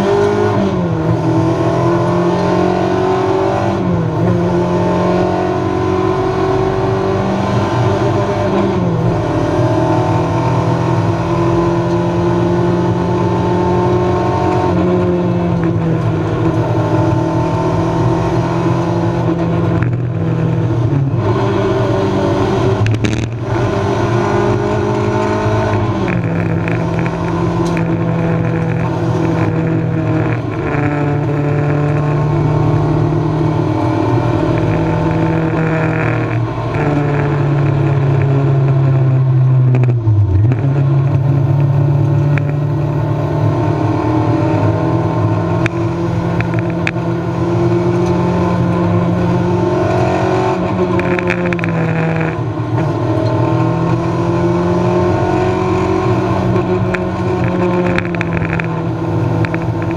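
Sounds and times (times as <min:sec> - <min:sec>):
race engine running hard: 0:00.0 - 0:59.9.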